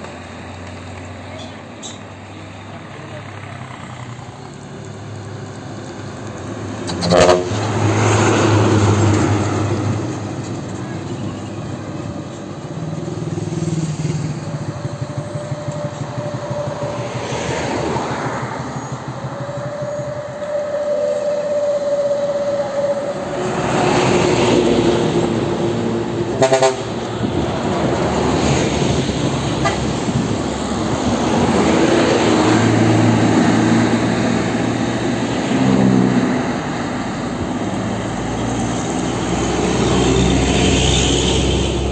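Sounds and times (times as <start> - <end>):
trucks and bus driving past: 0.0 - 41.9
vehicle horns tooting: 6.9 - 8.0, 26.3 - 27.0.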